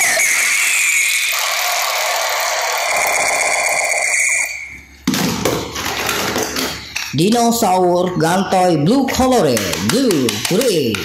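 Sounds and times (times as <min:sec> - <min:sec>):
toy gun buzzing whir: 0:00.0 - 0:04.4.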